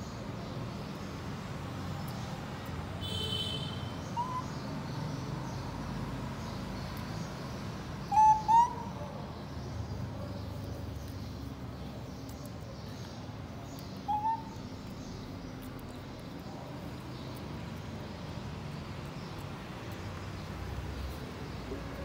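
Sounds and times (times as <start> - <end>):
macaque coo call: 4.2 - 4.5, 8.1 - 9.1, 14.1 - 14.6.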